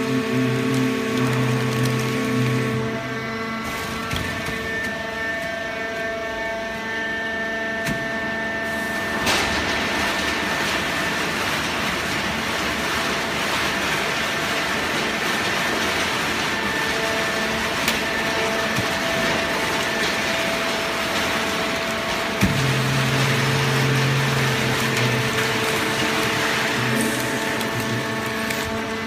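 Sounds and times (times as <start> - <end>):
machine drone with whining tones: 0.0 - 29.0.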